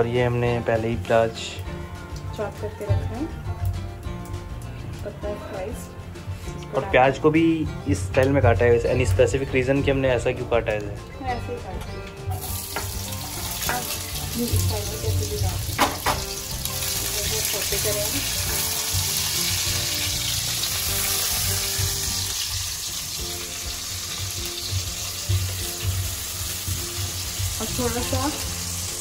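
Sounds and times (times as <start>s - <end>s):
onions sizzling in a pan: 12.3s - 29.0s
utensil knocking against pan: 12.6s - 14.0s, 15.7s - 16.4s.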